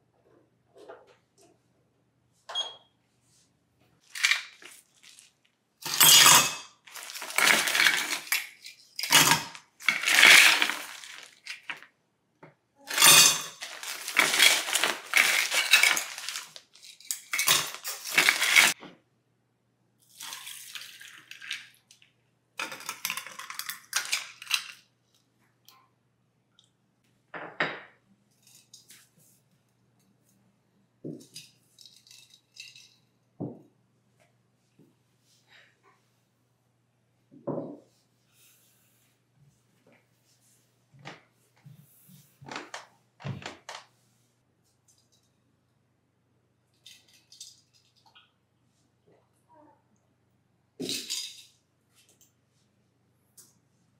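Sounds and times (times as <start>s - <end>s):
ice cubes clinking into glass: 5.8s - 11.8s, 12.9s - 18.8s, 31.8s - 33.0s.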